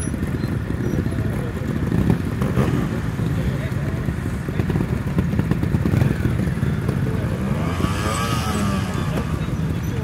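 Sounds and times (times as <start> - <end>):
motorcycle engine idling and revving: 0.0 - 10.0.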